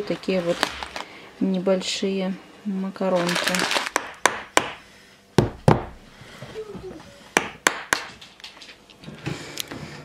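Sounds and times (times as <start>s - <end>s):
hammer knocking on wood: 4.0s - 4.8s, 5.4s - 6.0s.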